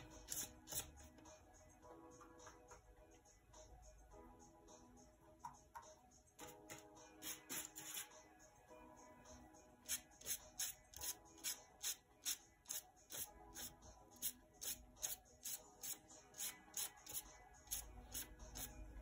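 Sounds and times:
soft background music: 0.0s - 19.0s
brush swishing on paper: 7.2s - 8.2s.

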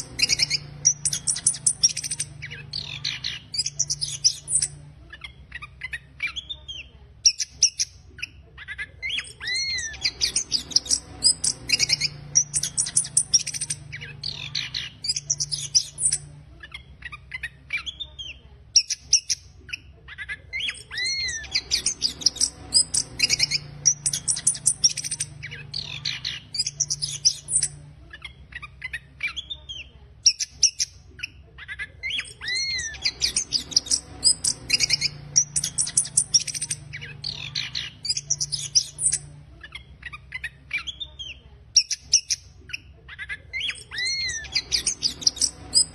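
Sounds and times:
thrush singing rapid twittering song: 0.0s - 45.9s.

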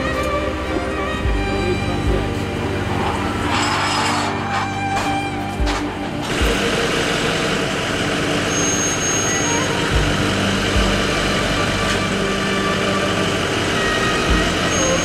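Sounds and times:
jeep engine running: 0.0s - 15.0s
dull low thumps: 9.9s - 11.3s.

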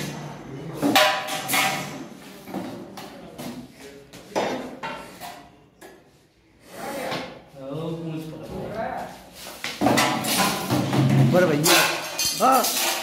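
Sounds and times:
knocks and metallic clattering: 0.8s - 2.8s, 9.7s - 13.0s.

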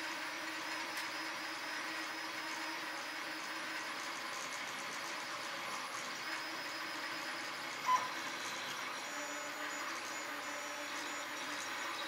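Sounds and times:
stepper motors whirring: 0.0s - 12.0s
short tone: 7.9s - 8.2s.

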